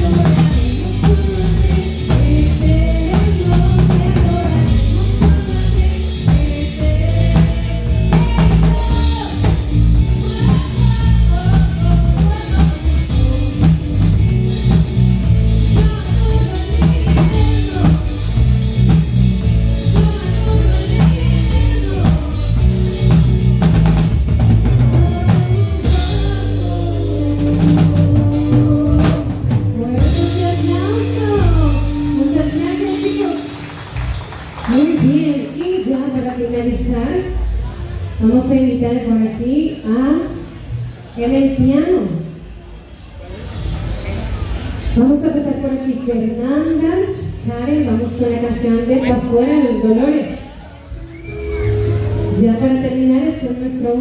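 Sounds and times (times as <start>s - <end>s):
person singing: 0.0s - 14.4s, 15.6s - 18.7s, 19.6s - 23.6s, 24.7s - 33.5s
drum kit beating: 0.0s - 37.6s
electric guitar: 0.0s - 38.4s.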